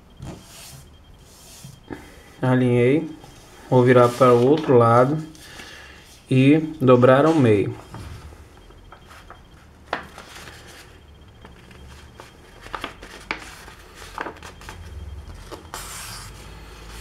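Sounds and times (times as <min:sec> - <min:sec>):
paper crackling and tapping: 0:09.0 - 0:10.6, 0:11.4 - 0:15.8
paper rustling: 0:11.6 - 0:16.2.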